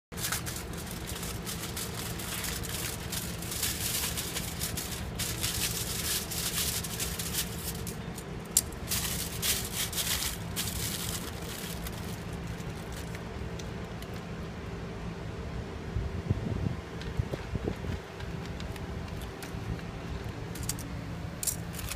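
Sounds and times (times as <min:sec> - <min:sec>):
foil and plastic crinkling: 0:00.1 - 0:14.3, 0:21.4 - 0:21.9
steady low hum: 0:00.1 - 0:21.9.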